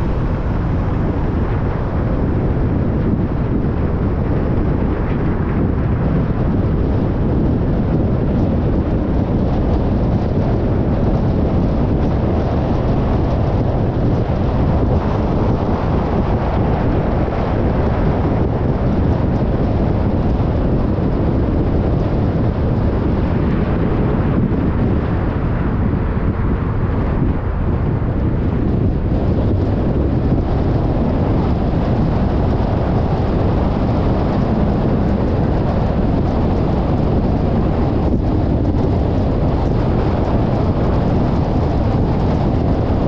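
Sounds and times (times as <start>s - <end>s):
air rushing past microphone: 0.0s - 43.0s
car road noise: 0.0s - 43.0s.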